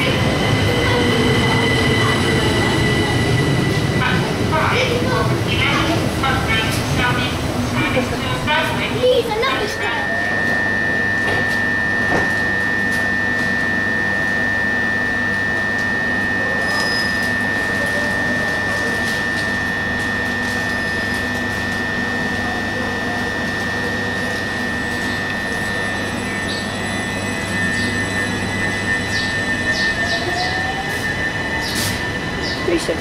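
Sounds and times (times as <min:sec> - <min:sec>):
train equipment high-pitched whine: 0:00.0 - 0:33.0.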